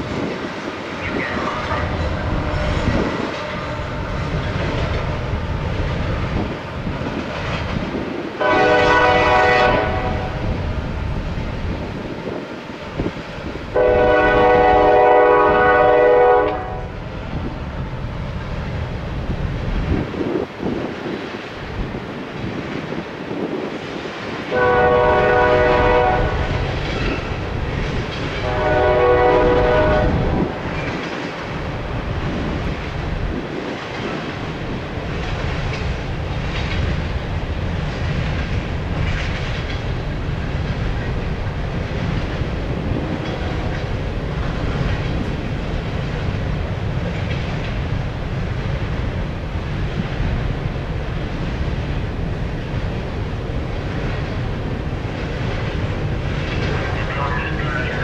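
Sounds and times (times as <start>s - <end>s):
wheels clattering on rails: 0.0s - 10.0s, 25.2s - 58.0s
freight train rumbling past: 0.0s - 58.0s
train horn blasts: 8.4s - 10.4s, 13.8s - 17.0s, 24.5s - 26.7s, 28.4s - 30.8s.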